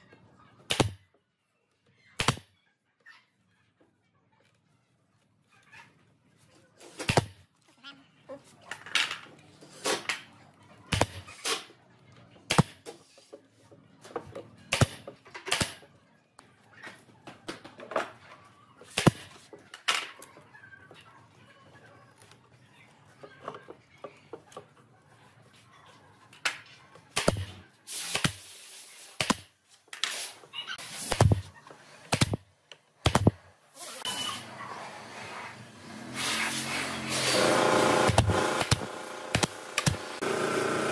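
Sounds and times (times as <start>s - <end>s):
nail gun firing into wood: 38.0s - 40.2s.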